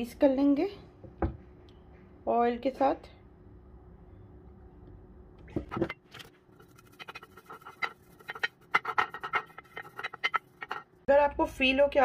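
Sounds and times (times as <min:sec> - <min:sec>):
pastry brush scratching dish: 0:06.5 - 0:11.0.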